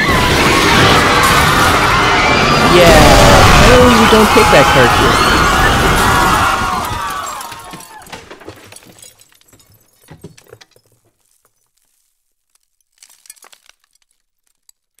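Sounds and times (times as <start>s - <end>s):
glass shattering: 5.6s - 15.0s
glass pieces tinkling: 7.2s - 15.0s.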